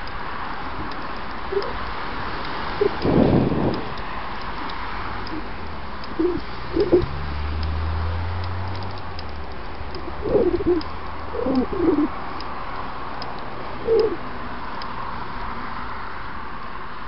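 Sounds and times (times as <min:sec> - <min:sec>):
pigeon cooing: 0:01.5 - 0:01.8, 0:02.8 - 0:03.2, 0:05.3 - 0:07.1, 0:10.0 - 0:12.2, 0:13.8 - 0:14.2.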